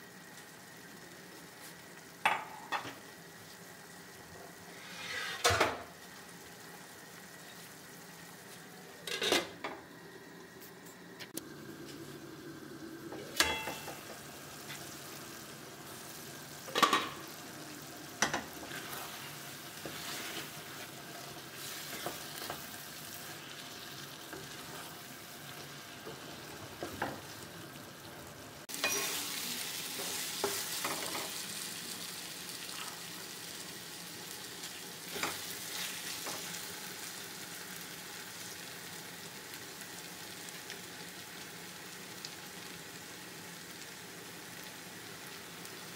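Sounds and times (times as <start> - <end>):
food sizzling in a pan: 0.0 - 45.9
wooden spatula scraping pan: 4.7 - 5.7, 18.6 - 21.0
lid and spatula clinking on pan: 13.2 - 14.1.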